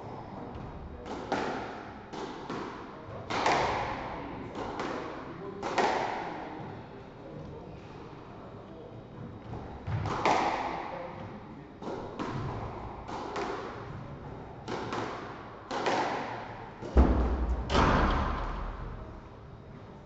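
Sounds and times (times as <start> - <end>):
squash ball hitting walls: 0.6 - 6.5, 9.7 - 19.1
heavy low thud: 17.0 - 19.0.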